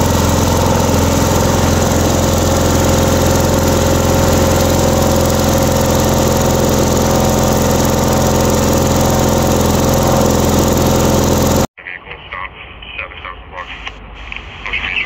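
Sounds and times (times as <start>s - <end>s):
engine running with loud hum: 0.0s - 11.7s.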